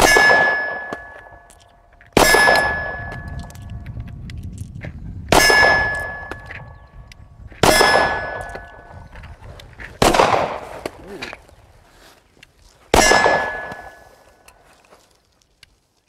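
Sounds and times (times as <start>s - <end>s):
pistol shots: 0.0s - 1.5s, 2.1s - 3.5s, 5.3s - 6.6s, 7.6s - 8.9s, 10.0s - 11.0s, 12.9s - 14.1s
steel plate target ringing: 0.0s - 1.5s, 2.2s - 3.5s, 5.3s - 6.8s, 7.6s - 9.0s, 13.0s - 14.2s.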